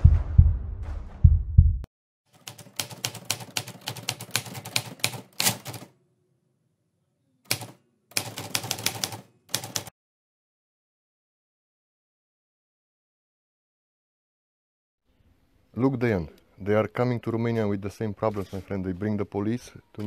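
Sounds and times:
typewriter key clacks: 0:02.5 - 0:05.9.

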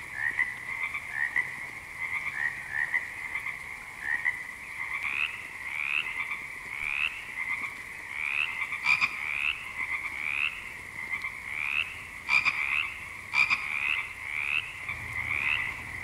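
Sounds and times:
frogs croaking: 0:00.0 - 0:16.0.

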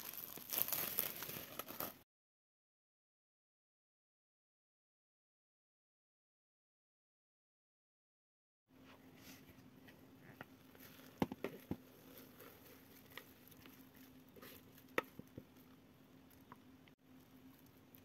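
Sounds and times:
wet dough squishing: 0:10.4 - 0:18.0.

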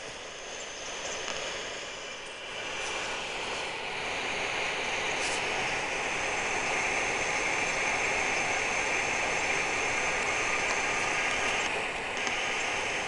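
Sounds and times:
steady rushing outdoor noise: 0:00.0 - 0:13.0.

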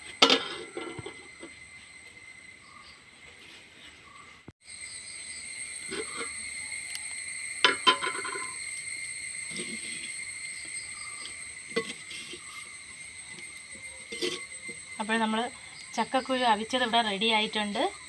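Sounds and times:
crickets trilling: 0:00.0 - 0:18.0
kitchen utensils clattering: 0:00.2 - 0:01.4, 0:05.9 - 0:06.3, 0:07.6 - 0:08.6, 0:13.8 - 0:14.8.

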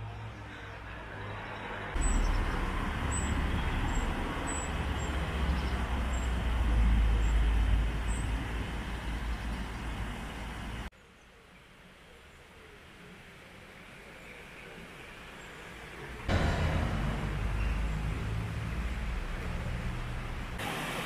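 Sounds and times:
water rushing over a weir: 0:02.0 - 0:10.9, 0:12.6 - 0:21.0
heavy low rumble: 0:16.3 - 0:20.6.

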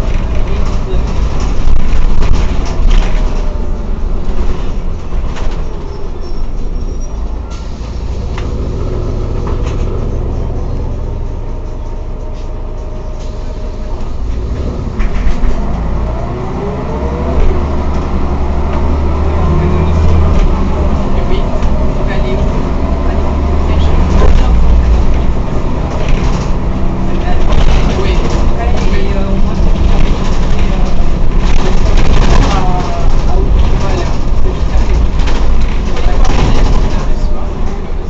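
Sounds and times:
knocks and rattles: 0:00.0 - 0:06.8, 0:23.6 - 0:37.8
bus engine drone: 0:00.0 - 0:38.0
rising drivetrain whine: 0:07.6 - 0:27.0.

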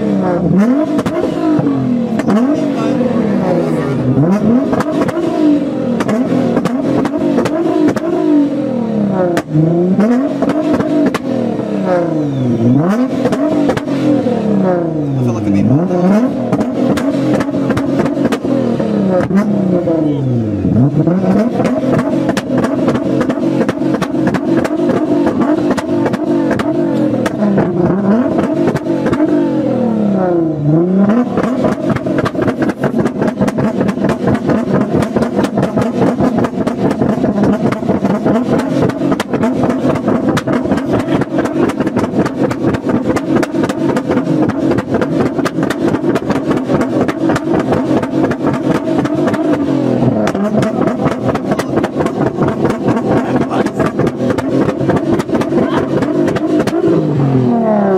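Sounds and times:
exhaust pops and crackles: 0:00.0 - 0:29.5, 0:30.5 - 0:57.5
car engine revving: 0:00.0 - 0:57.9.

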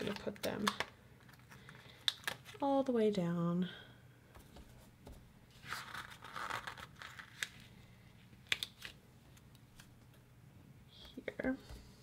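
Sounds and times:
sticker peeling rustle: 0:05.6 - 0:07.7.

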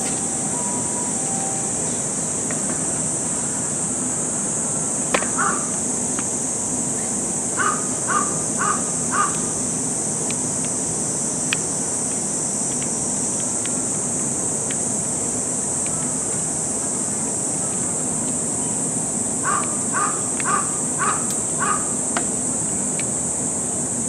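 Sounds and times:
insects droning: 0:00.0 - 0:24.0
crow cawing: 0:05.4 - 0:05.7, 0:07.6 - 0:09.4, 0:19.4 - 0:22.0.

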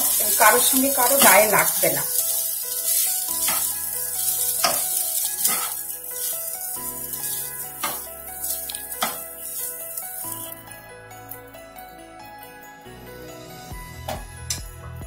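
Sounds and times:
spoon scraping pan: 0:00.0 - 0:10.4
rice sizzling in hot oil: 0:00.0 - 0:10.6
soft background music: 0:00.0 - 0:15.0.

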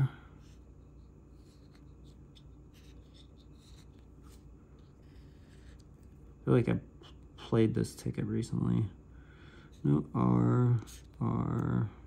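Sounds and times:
steady low hum: 0:00.0 - 0:12.0
scratching lottery ticket: 0:01.3 - 0:06.3.

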